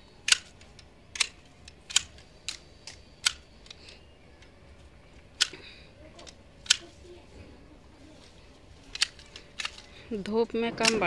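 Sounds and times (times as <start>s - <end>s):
hand shears snipping stems: 10.8s - 11.0s.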